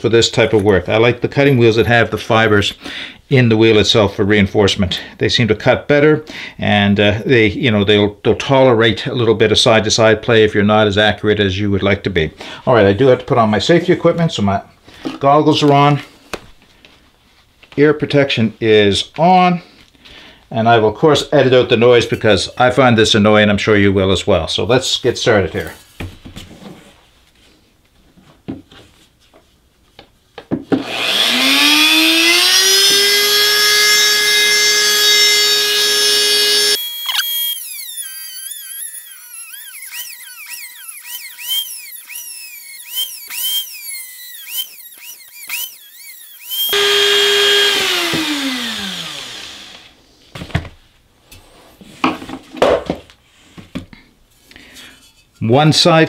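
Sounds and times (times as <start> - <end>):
rotary tool cutting metal whine: 30.8 - 49.9.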